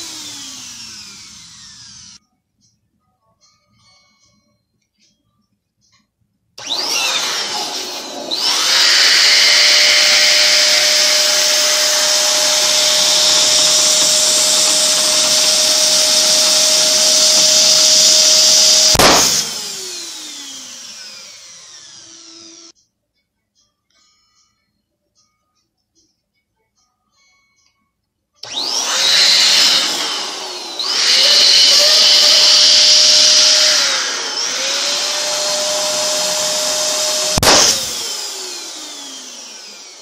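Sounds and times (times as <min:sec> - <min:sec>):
electric balloon pump running: 0:00.0 - 0:02.2, 0:06.6 - 0:22.7, 0:28.4 - 0:40.0
balloon bursting: 0:18.8 - 0:19.6, 0:37.2 - 0:38.0.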